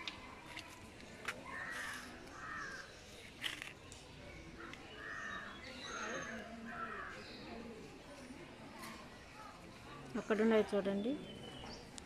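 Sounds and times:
crows cawing: 0:01.5 - 0:02.8.

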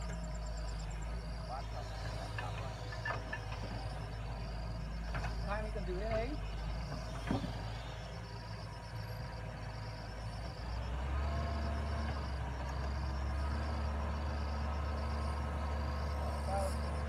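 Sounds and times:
excavator digging soil: 0:00.0 - 0:08.4
excavator diesel engine running: 0:00.0 - 0:17.0.

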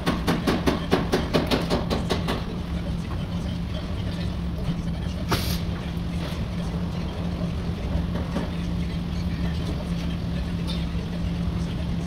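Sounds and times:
low machinery hum: 0:00.0 - 0:12.0.

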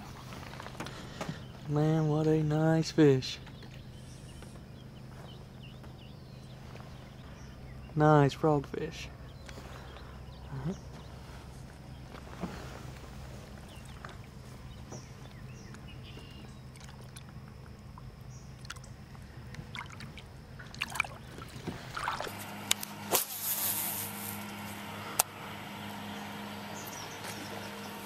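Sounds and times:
steady low hum: 0:00.0 - 0:28.0
water sloshing against boat: 0:09.4 - 0:22.6
sharp splashes: 0:16.7 - 0:17.6, 0:18.5 - 0:19.0, 0:19.6 - 0:22.4.

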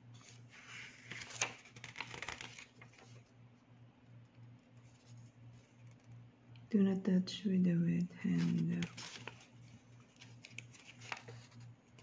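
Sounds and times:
paper pages being flipped: 0:00.2 - 0:03.3, 0:08.3 - 0:12.0.

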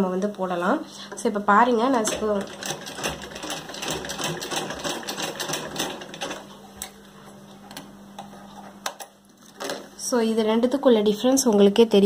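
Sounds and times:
sewing machine stitching: 0:01.9 - 0:06.5.

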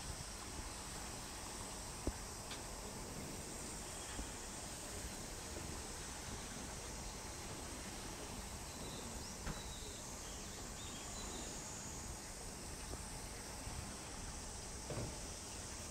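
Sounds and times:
high insect-like hiss: 0:00.0 - 0:15.9
faint bird chirps: 0:08.7 - 0:11.6.

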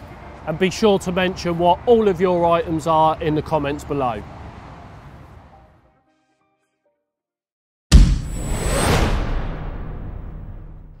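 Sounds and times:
deep cinematic boom: 0:07.9 - 0:11.0.

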